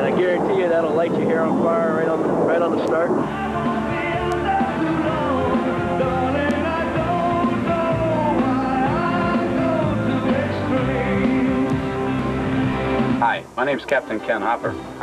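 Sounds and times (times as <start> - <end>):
rock song with lead vocal: 3.1 - 13.2.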